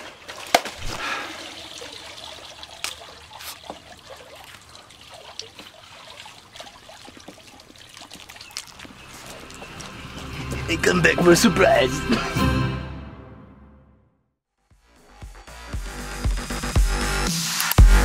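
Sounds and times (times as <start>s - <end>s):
water trickling: 0.0s - 10.8s.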